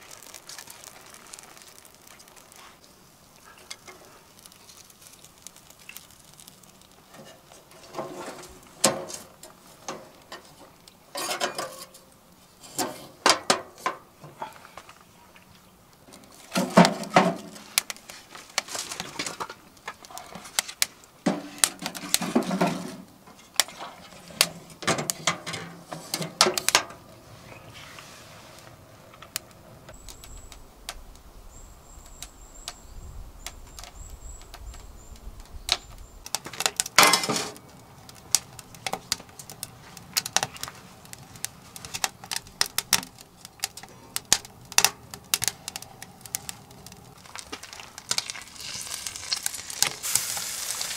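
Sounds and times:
frying pan clattering: 36.5 - 37.6
stove door clanking: 37.0 - 37.6.

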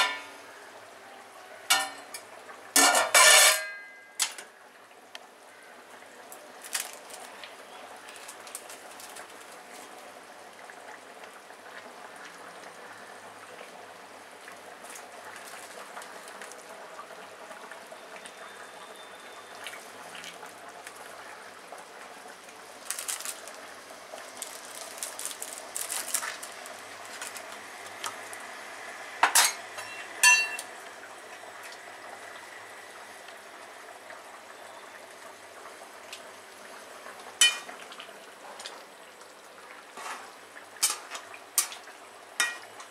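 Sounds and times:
metal clanks ringing: 2.8 - 4.4, 29.4 - 30.7
curry simmering and bubbling: 4.5 - 42.9.

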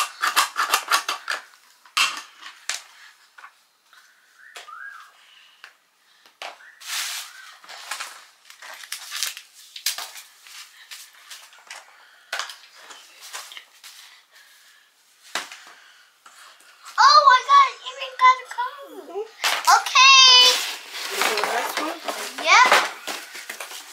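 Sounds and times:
cardboard packaging rustling: 6.8 - 11.8, 19.4 - 23.9.

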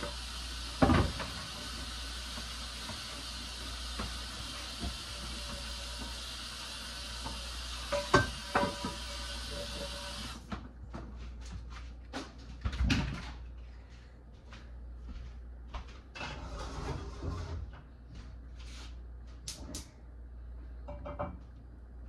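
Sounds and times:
steady hiss: 0.0 - 10.4.

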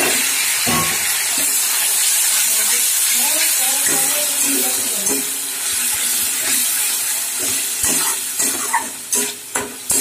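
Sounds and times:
food sizzling in hot oil: 0.0 - 10.0
metal spatula scraping pan: 2.3 - 10.0.

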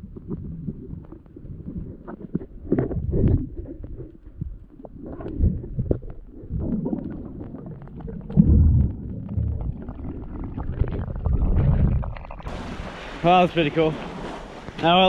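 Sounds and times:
faint crackling clicks: 0.0 - 12.5
muffled underwater water rumbling: 0.0 - 15.0.

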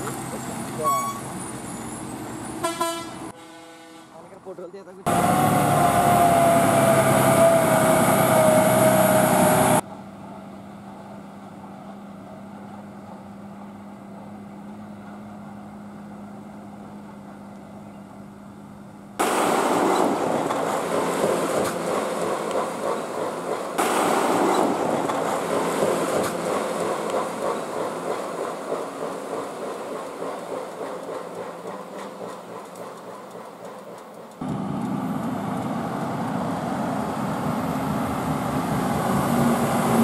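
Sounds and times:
lorry engine and road noise: 0.0 - 3.4, 4.2 - 40.0
lorry horn blast: 2.6 - 4.2.

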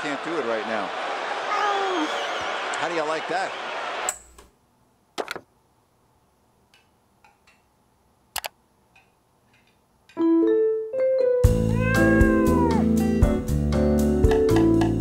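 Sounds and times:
trackpad clicks: 8.4 - 8.6
music with held notes: 10.2 - 15.0.

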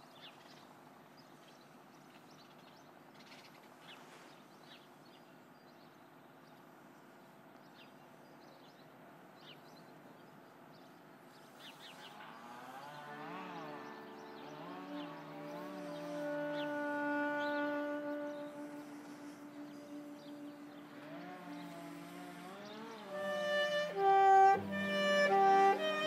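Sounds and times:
orchestra playing: 23.1 - 26.0.

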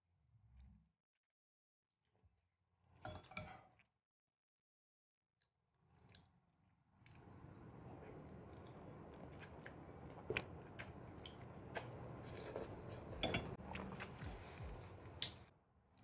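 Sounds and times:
person chewing and slurping noodles: 7.9 - 14.6.

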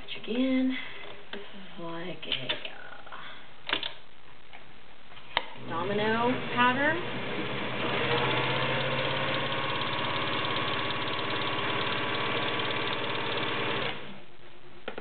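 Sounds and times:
sewing machine running: 5.6 - 14.2.

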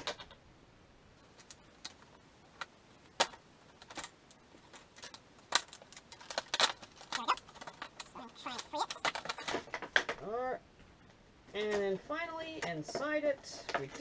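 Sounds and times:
plastic packaging crackling: 1.2 - 10.2.

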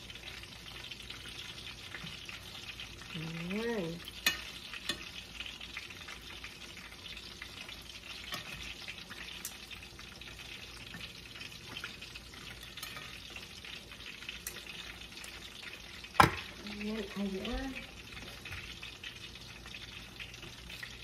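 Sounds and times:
food sizzling in frying pan: 0.0 - 21.0
metal tongs clicking on pan: 4.1 - 5.1, 12.8 - 13.2.

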